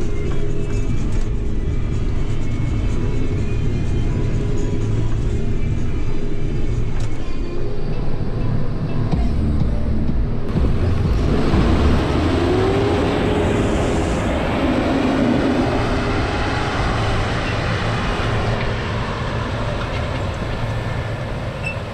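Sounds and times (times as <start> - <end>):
tractor diesel engine under load: 10.5 - 21.9.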